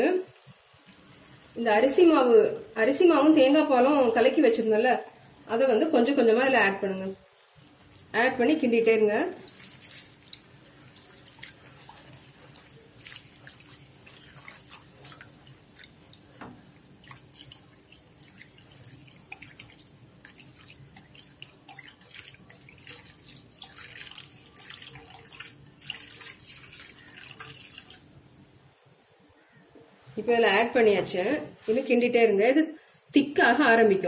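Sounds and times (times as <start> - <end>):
syrup bubbling and popping: 9.3 - 28.6.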